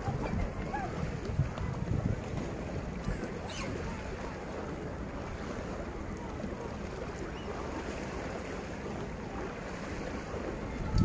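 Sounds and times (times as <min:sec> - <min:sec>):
wind on microphone: 0:00.0 - 0:05.9, 0:09.9 - 0:11.0.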